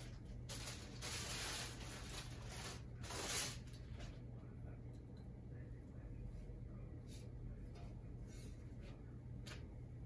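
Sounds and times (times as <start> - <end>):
soft handling noises: 0.0 - 10.0
steady low hum: 0.0 - 10.0.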